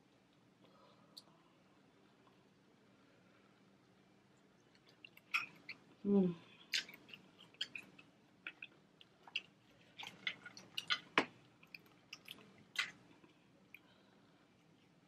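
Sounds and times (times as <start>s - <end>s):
chewing: 4.6s - 5.9s, 6.6s - 13.9s
wet squishes: 6.6s - 13.9s
crawfish shells cracking: 6.7s - 13.0s.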